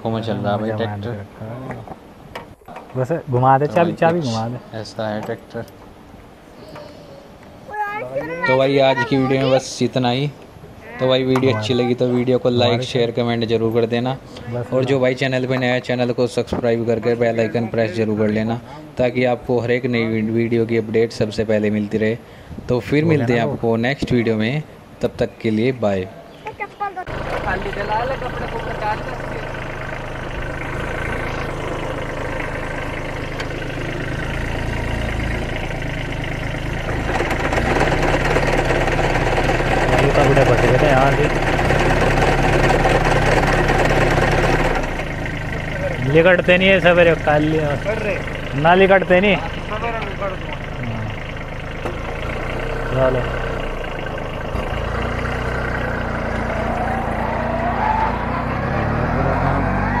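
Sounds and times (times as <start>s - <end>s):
tractor diesel engine running: 7.3s - 25.0s, 26.4s - 60.0s
rotavator turning: 26.7s - 60.0s.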